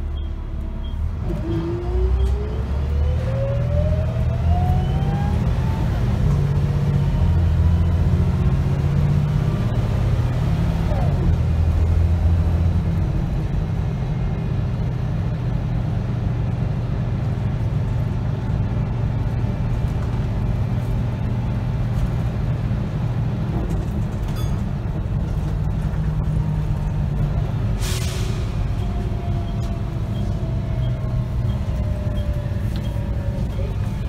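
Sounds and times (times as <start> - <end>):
bus engine low drone: 0.0 - 34.0
brief hiss: 27.8 - 28.6.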